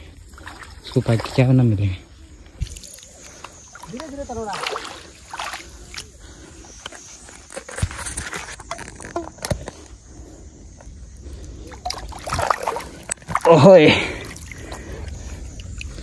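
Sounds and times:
small water splashes: 0.0 - 7.1, 11.3 - 16.0.

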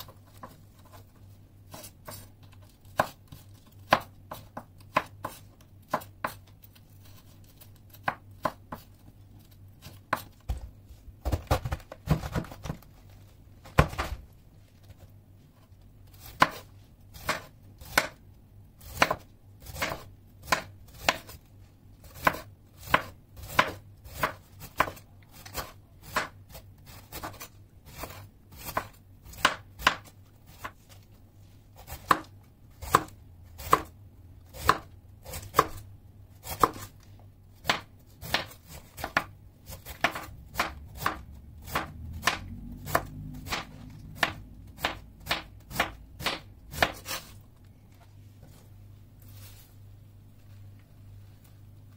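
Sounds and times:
knife chopping on wooden board: 2.9 - 6.4, 8.0 - 8.9, 16.2 - 18.2, 18.8 - 21.4, 22.1 - 26.4, 27.1 - 30.8, 31.9 - 33.9, 34.5 - 35.8, 37.6 - 47.3.

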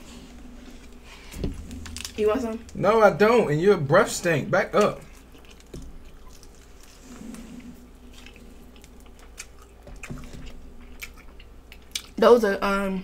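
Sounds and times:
close-up chewing: 4.8 - 12.2.

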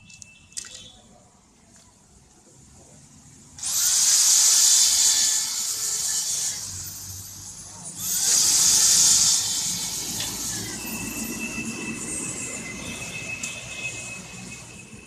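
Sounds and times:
electric drill boring: 3.6 - 15.0.

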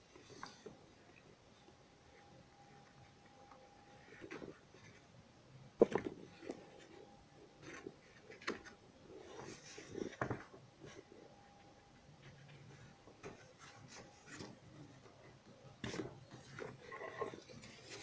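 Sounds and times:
soft rubbing and scraping: 6.1 - 18.0.

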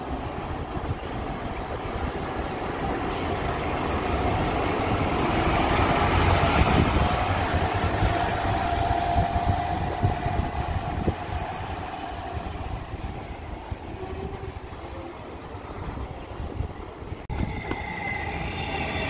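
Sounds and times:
bus engine pulling away: 3.7 - 8.8.

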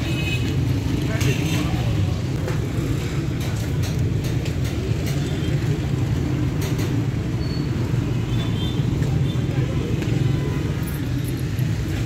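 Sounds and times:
auto-rickshaw passing: 0.0 - 12.0
traffic engine rumble: 0.0 - 12.0.

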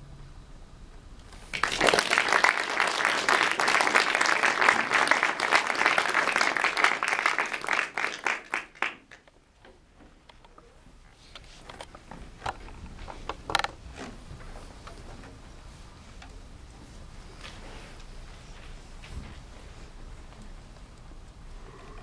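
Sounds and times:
audience applause: 1.4 - 9.3.

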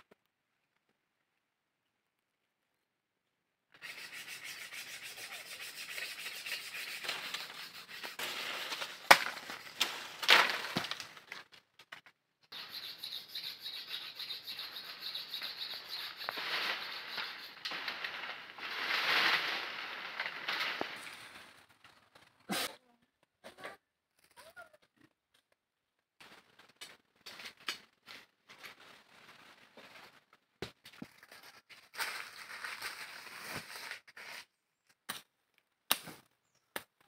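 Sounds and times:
leaves and branches rustling: 6.2 - 11.6, 14.7 - 22.3, 26.2 - 34.4
sharp branch crack: 7.0 - 11.9, 15.4 - 21.5.

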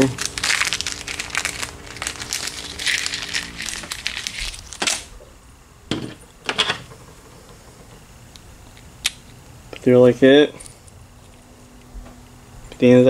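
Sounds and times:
plastic package crinkling: 0.0 - 5.1.

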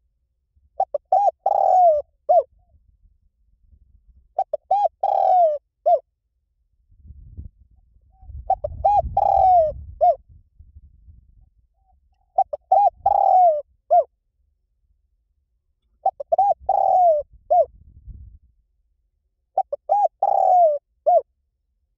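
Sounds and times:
dove cooing: 0.8 - 2.6, 4.4 - 6.0, 8.1 - 10.2, 11.8 - 14.1, 16.0 - 17.7, 19.6 - 21.3.

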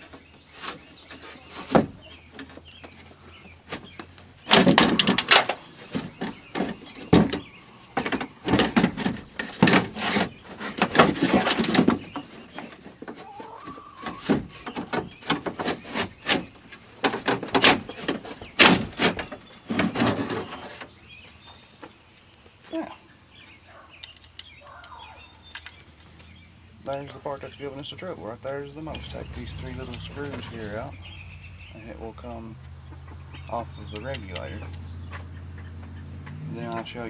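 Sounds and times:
metal scraping and clanking: 8.1 - 13.0, 14.0 - 20.9.

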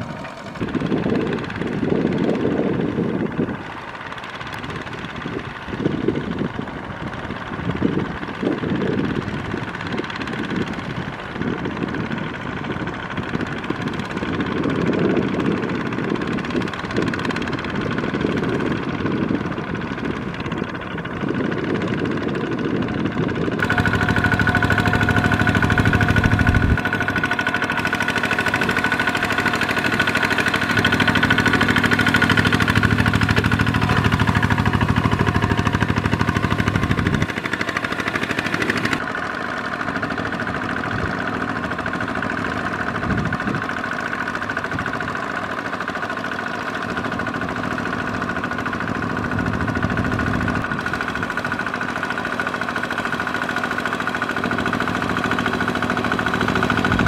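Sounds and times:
diesel engine running under load: 0.0 - 57.0
wheels churning through water: 0.0 - 57.0.

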